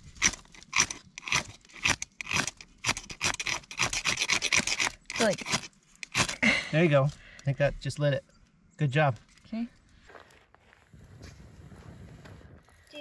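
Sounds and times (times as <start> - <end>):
ferro rod scraped with striker: 0.2 - 6.4.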